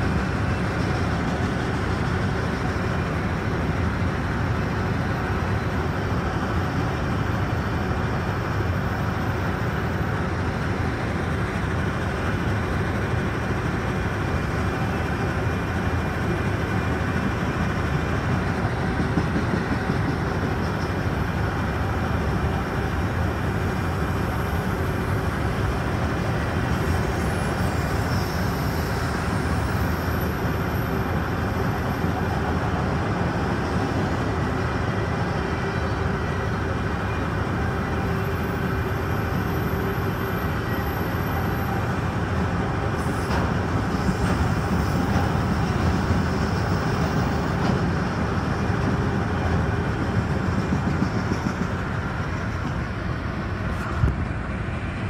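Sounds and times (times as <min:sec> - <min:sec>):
freight train wheels on rails: 0:00.0 - 0:55.0.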